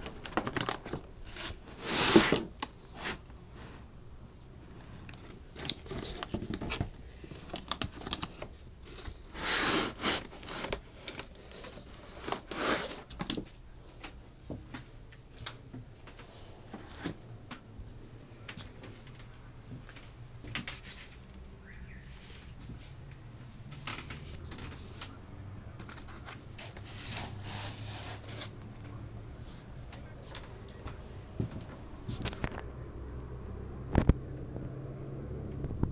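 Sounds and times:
foam packing blocks scraping: 0.0 - 3.9, 5.5 - 13.2.

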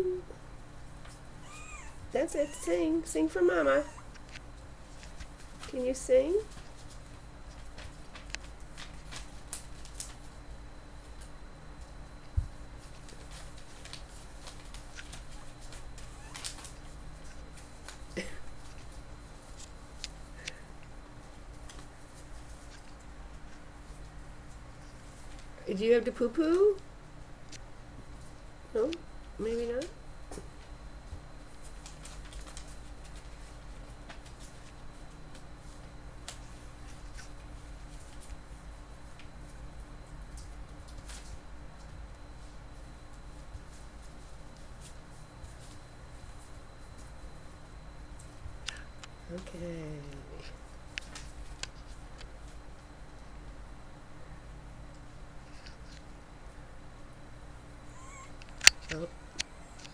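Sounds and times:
puppies rustling on newspaper: 0.8 - 26.8, 28.0 - 53.6
paws clicking on paper: 6.5 - 10.3, 12.8 - 20.2, 31.6 - 39.4.

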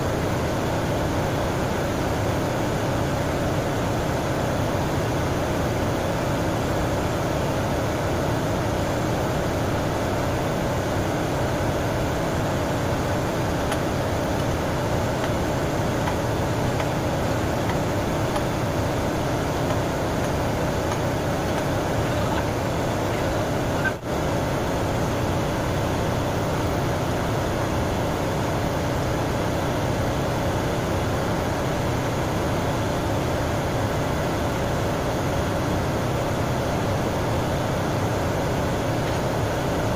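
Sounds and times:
engine room machinery drone: 0.0 - 39.9.

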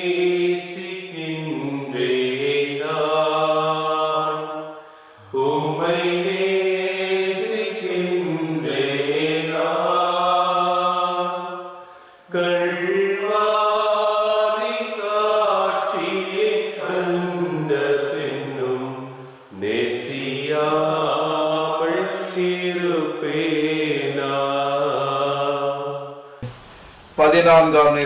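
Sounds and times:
person singing a hymn: 0.0 - 26.6.

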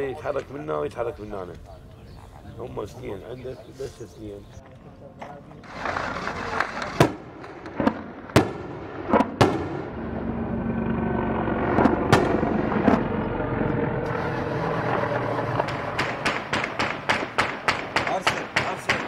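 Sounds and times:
low engine drone: 8.6 - 16.6
gunfire shots and bangs: 15.8 - 19.0.

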